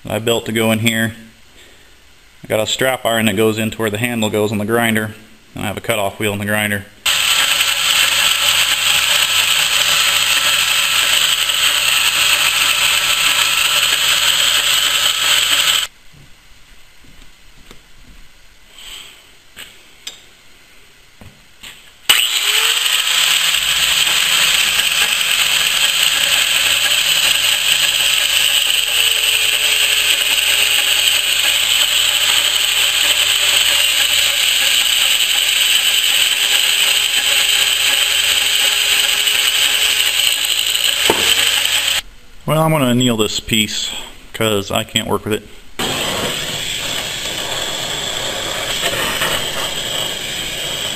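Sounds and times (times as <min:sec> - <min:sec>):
angle grinder cutting steel: 0:07.1 - 0:15.9, 0:22.1 - 0:42.0, 0:45.8 - 0:50.9.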